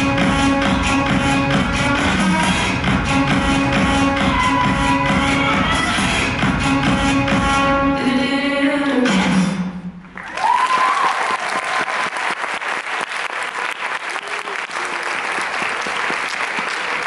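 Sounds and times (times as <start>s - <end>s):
dance music: 0.0s - 9.8s
audience applause: 10.2s - 17.0s
high cheer: 10.2s - 17.0s.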